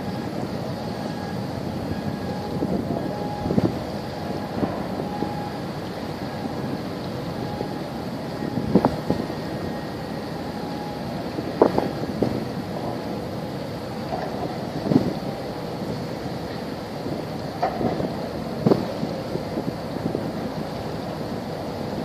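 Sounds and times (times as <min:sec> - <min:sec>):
wind buffeting microphone: 0:01.8 - 0:10.2, 0:11.2 - 0:13.1, 0:14.2 - 0:16.2, 0:16.8 - 0:20.7.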